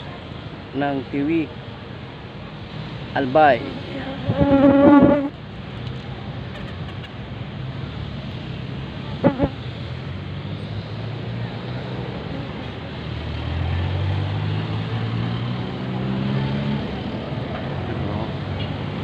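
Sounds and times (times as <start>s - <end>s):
street traffic: 0.0s - 19.0s.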